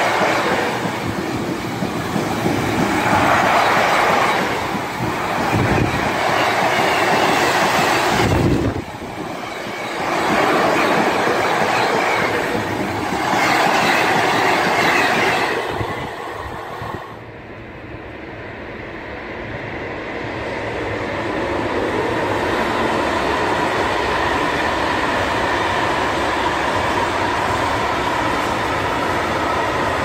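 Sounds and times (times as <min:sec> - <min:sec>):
freight train wheels clattering: 0:00.0 - 0:16.3.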